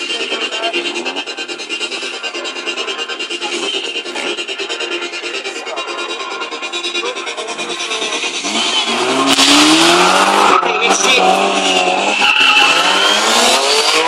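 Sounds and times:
motorcycle engine revving: 0:00.0 - 0:14.0
tyre squealing on tarmac: 0:08.4 - 0:14.0.

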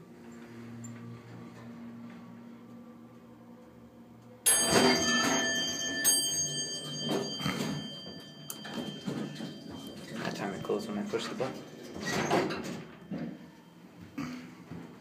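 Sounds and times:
elevator bell strikes: 0:04.5 - 0:13.5.

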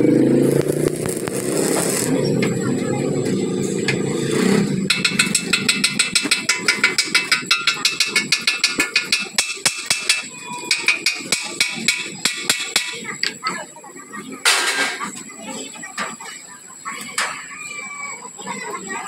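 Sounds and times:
hammer tapping on metal: 0:04.9 - 0:13.0.

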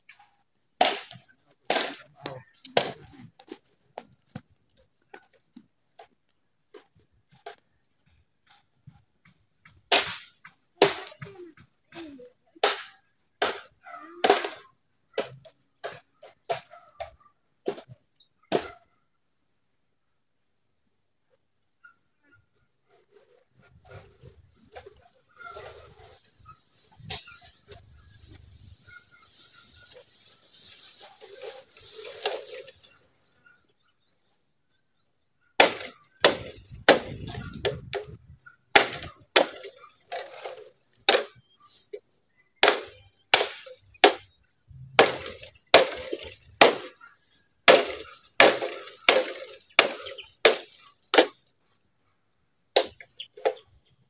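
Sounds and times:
rustling hiss: 0:25.4 - 0:33.3
blade chopping bamboo: 0:35.6 - 0:37.7, 0:38.8 - 0:41.4, 0:42.6 - 0:44.3, 0:45.0 - 0:47.0, 0:47.7 - 0:51.4.

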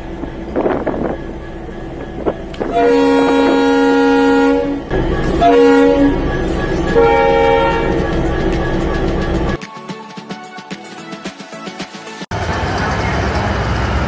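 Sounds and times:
running train rumble: 0:00.0 - 0:09.6, 0:12.3 - 0:14.0
locomotive horn blasts: 0:02.6 - 0:08.2.

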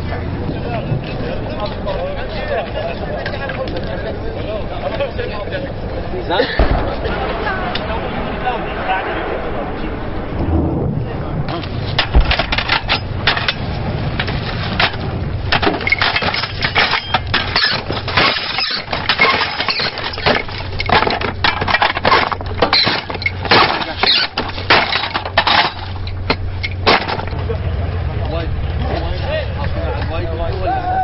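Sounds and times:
low steady hum: 0:00.0 - 0:31.0
metal ammunition belt clattering: 0:11.9 - 0:27.4.

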